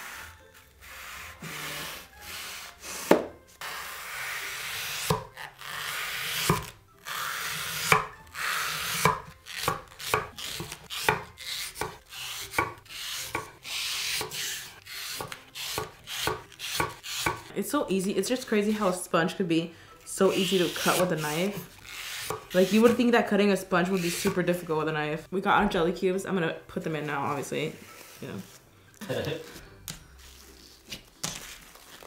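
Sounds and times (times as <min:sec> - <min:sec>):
knife chopping on cutting board: 0:03.0 - 0:03.3, 0:07.7 - 0:17.5, 0:20.6 - 0:23.0
knife slicing foam sponge: 0:20.3 - 0:23.1.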